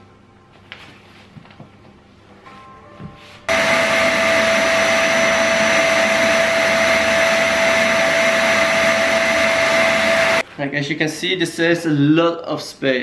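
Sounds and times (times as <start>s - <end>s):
vacuum cleaner whining: 3.5s - 10.4s.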